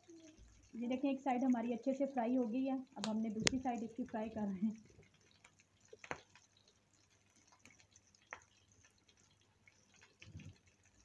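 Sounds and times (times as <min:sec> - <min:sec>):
hot oil crackling in a pan: 0:00.0 - 0:11.0
sharp pops of frying oil: 0:03.0 - 0:04.0, 0:05.4 - 0:06.5, 0:07.6 - 0:08.6.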